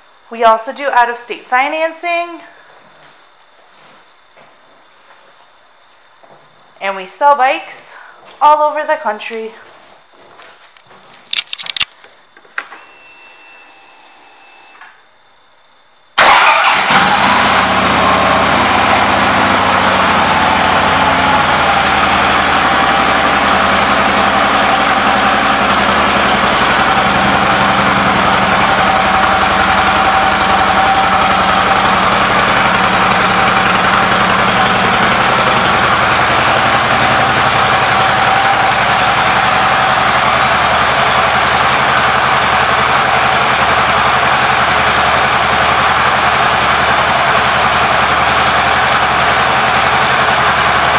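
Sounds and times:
motorcycle engine starting and idling: 0:16.2 - 0:50.9.

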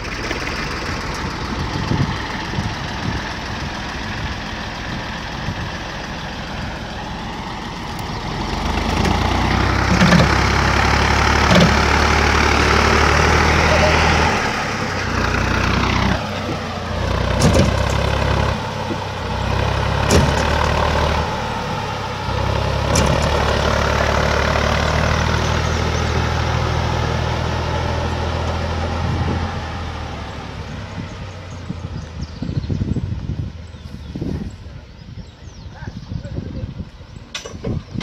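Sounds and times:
tractor engine under load: 0:00.0 - 0:38.0
sharp knocks: 0:17.3 - 0:18.3, 0:20.0 - 0:21.0, 0:22.9 - 0:23.6.

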